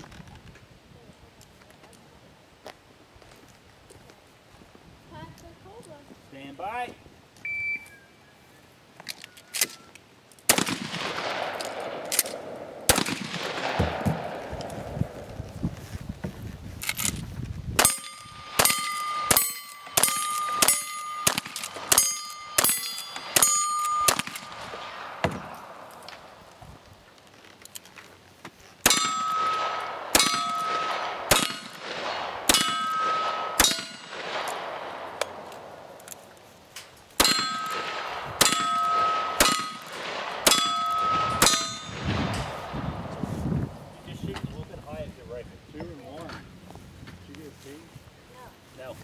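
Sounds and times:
revolver shots: 0:10.5 - 0:15.0
steel target plate ringing: 0:17.8 - 0:25.5, 0:28.9 - 0:31.8, 0:32.5 - 0:34.2, 0:37.2 - 0:42.6.

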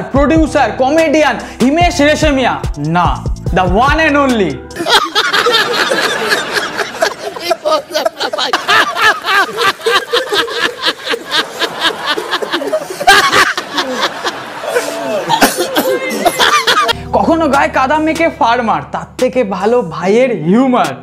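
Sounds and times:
man laughing heartily: 0:04.8 - 0:17.0.

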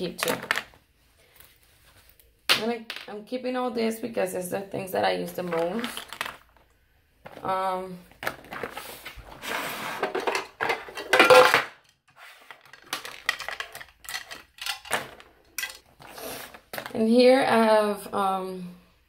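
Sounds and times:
makeup products clattering on acrylic: 0:05.4 - 0:06.6, 0:10.0 - 0:11.8, 0:12.6 - 0:15.9.

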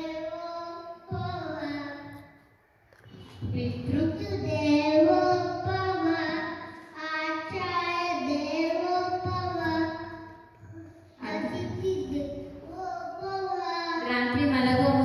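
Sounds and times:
boy chanting into microphone: 0:00.0 - 0:02.1, 0:07.4 - 0:10.2.

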